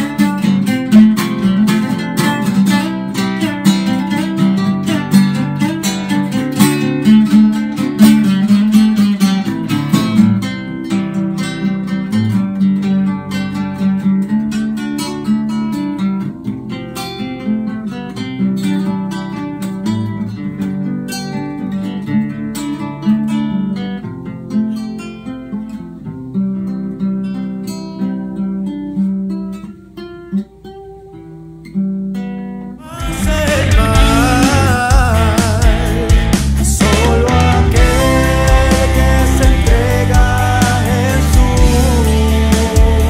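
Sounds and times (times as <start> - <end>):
classical guitar duet: 0.0 - 43.0.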